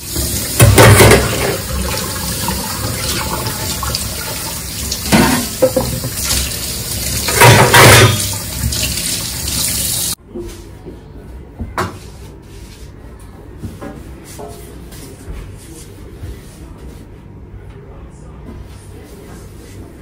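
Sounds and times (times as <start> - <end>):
tap running into sink: 0.1 - 10.1
metal dishes clattering: 0.6 - 1.9, 5.0 - 6.4, 7.2 - 8.6.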